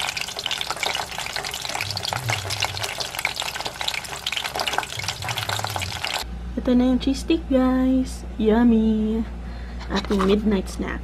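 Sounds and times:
deep-frying oil sizzling: 0.0 - 6.2.

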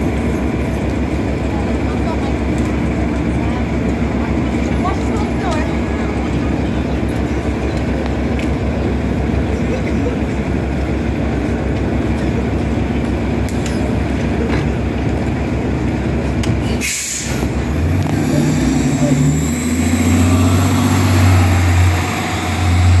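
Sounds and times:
bus engine: 0.0 - 23.0
air brake hiss: 16.6 - 17.5.

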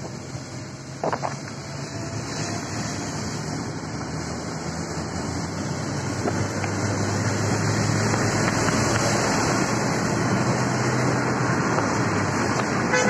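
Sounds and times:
low engine hum: 0.0 - 13.0
tyres hissing on wet road: 0.0 - 13.0.

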